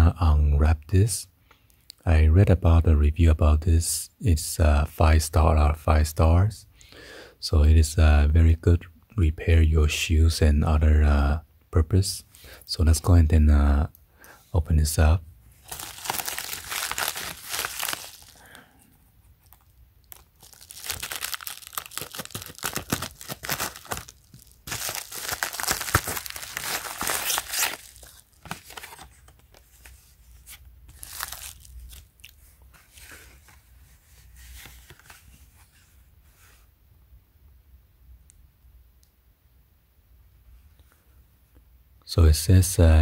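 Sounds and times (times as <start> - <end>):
plastic mailer tearing and crinkling: 15.6 - 18.5, 19.4 - 29.6, 30.9 - 32.3.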